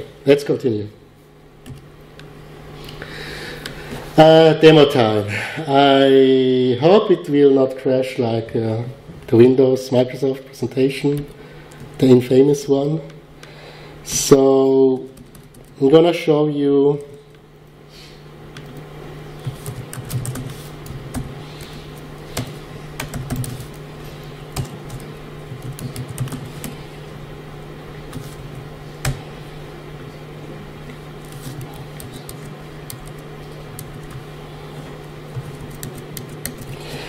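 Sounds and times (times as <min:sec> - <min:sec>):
steady low hum: 0:00.0 - 0:37.0
keyboard typing clicks: 0:22.4 - 0:23.8, 0:24.5 - 0:26.8, 0:31.3 - 0:34.2, 0:35.3 - 0:36.8.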